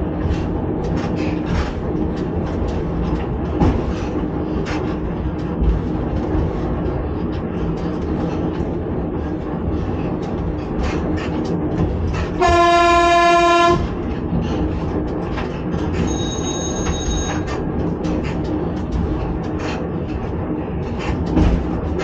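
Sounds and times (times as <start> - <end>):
train running rumble: 0.0 - 22.0
wheels clicking over rail joints: 0.0 - 22.0
train horn: 12.4 - 13.9.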